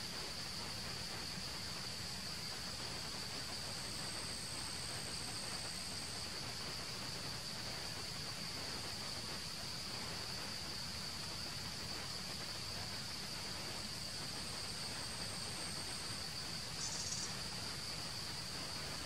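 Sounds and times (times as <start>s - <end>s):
forest insects droning: 0.0s - 19.0s
faint higher insect tone: 0.1s - 19.0s
insect buzz: 11.8s - 19.0s.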